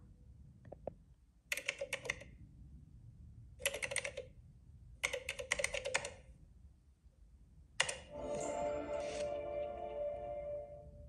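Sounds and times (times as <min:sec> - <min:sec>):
keyboard typing clicks: 0:01.5 - 0:02.3, 0:03.6 - 0:04.3, 0:05.0 - 0:06.2.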